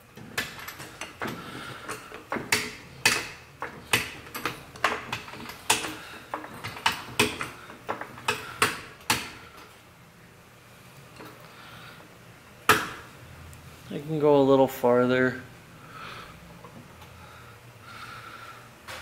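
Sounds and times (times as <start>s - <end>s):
car jack clicking: 0.2s - 9.4s.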